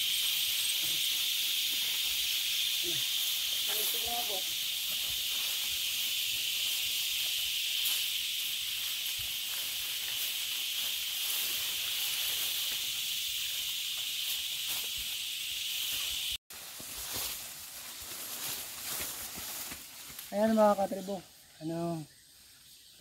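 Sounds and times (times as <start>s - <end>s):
steps rustling through grass: 0.0s - 20.8s
high-pitched insect chorus: 0.0s - 23.0s.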